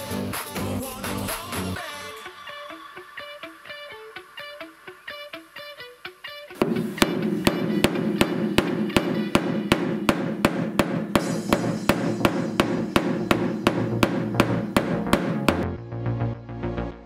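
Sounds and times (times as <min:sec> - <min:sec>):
rubber mallet tapping sheet metal: 0:06.6 - 0:15.6.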